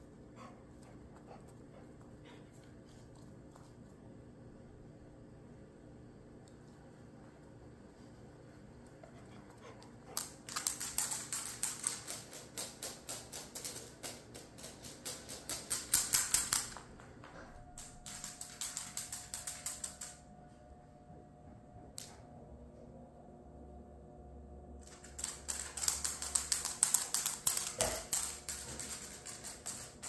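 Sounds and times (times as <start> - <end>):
dog claws clicking on hard floor: 9.6 - 20.2, 24.8 - 30.0.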